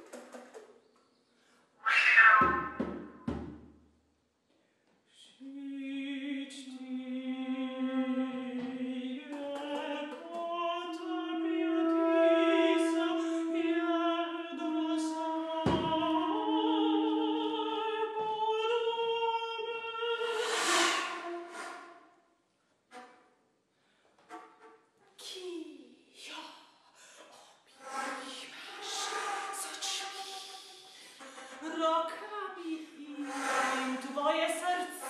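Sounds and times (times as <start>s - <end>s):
sharp knock: 2.3s - 3.6s
woman singing long notes: 5.4s - 21.4s.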